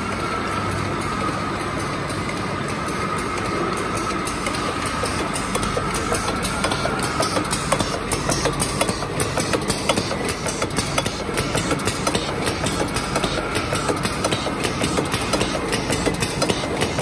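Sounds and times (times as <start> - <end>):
machine hum and whine: 0.0 - 17.0.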